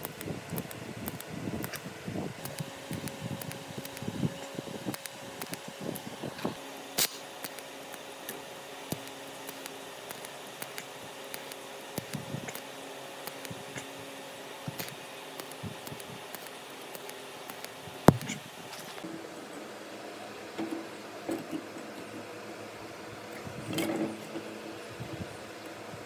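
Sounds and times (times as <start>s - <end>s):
small clicks: 0.0s - 6.1s, 7.0s - 13.9s, 14.7s - 19.0s
welding arc humming and hissing: 0.0s - 26.0s.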